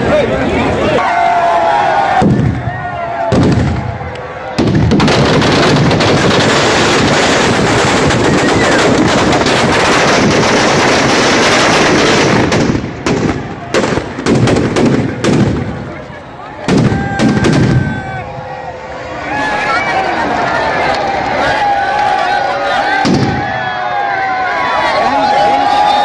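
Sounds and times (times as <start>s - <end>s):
firecrackers bursting: 2.2s - 18.4s, 23.0s - 23.6s.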